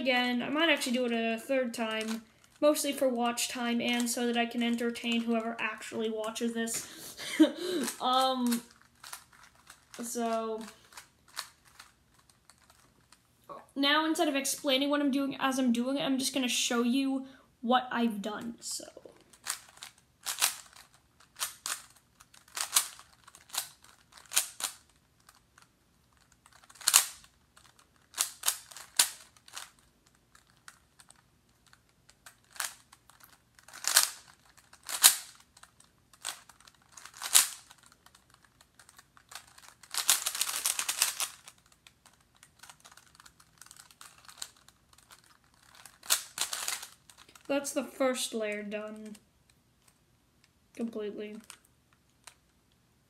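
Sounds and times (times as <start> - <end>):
puzzle cube layers clicking: 7.8 - 10.0, 19.4 - 47.8.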